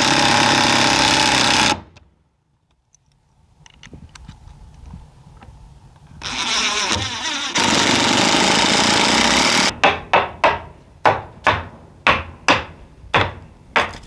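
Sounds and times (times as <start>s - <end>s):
cordless drill driving screw: 6.2s - 9.7s.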